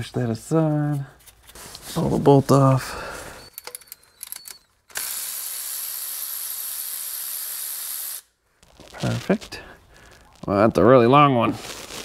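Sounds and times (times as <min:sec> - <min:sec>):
electric ratchet spinning: 0:04.2 - 0:08.3.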